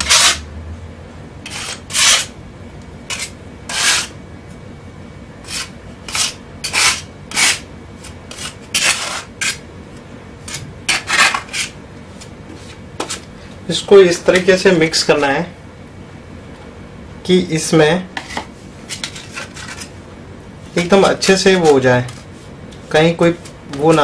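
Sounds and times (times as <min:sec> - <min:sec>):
putty knife scraping floor: 0:00.0 - 0:00.5, 0:01.4 - 0:02.3, 0:03.1 - 0:04.2, 0:05.4 - 0:09.6, 0:10.4 - 0:13.3, 0:18.2 - 0:19.9.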